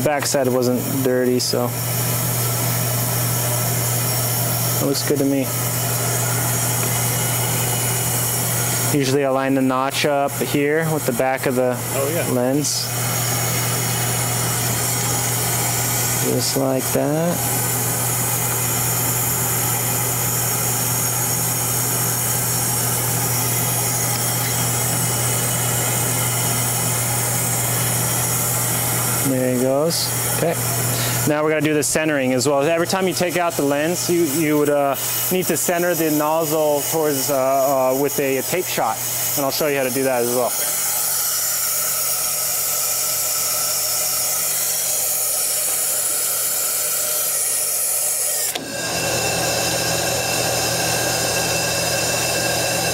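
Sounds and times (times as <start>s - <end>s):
workshop machinery humming: 0.0s - 52.9s
rushing air hiss: 25.7s - 31.4s.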